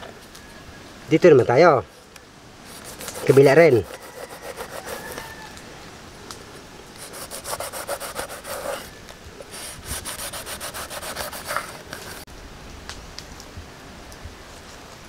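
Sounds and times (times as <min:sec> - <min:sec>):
knife sawing through fish: 0:02.8 - 0:05.2, 0:07.0 - 0:08.9, 0:09.5 - 0:11.8.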